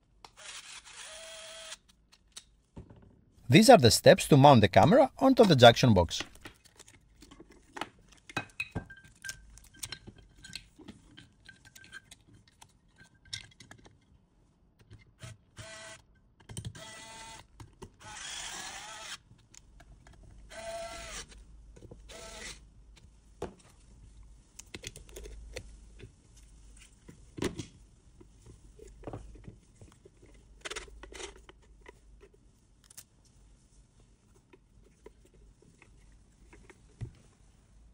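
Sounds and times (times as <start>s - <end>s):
screwdriver driving screws: 0.2s - 2.0s, 16.6s - 19.2s
plastic parts clicking and tapping: 16.4s - 16.8s.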